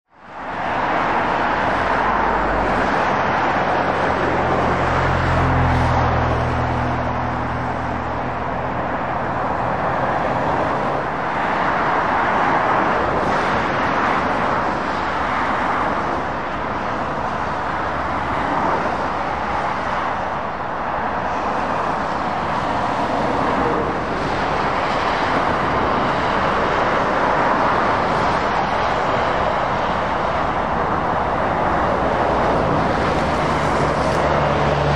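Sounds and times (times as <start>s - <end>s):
motorway traffic rushing: 0.1s - 34.9s
low engine drone: 1.1s - 11.2s.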